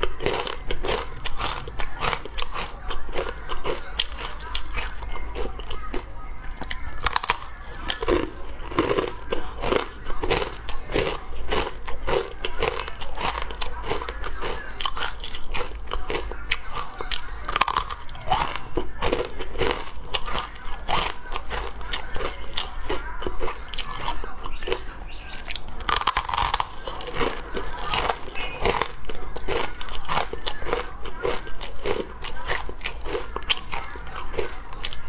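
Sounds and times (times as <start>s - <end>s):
crunching bites and chewing: 0.0s - 35.0s.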